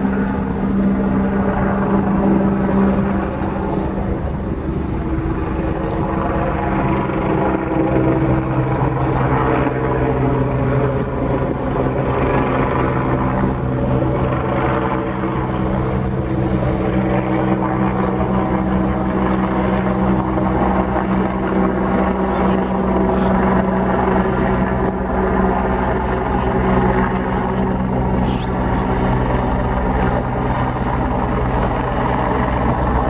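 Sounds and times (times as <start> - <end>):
helicopter rotor hum: 0.0 - 33.0.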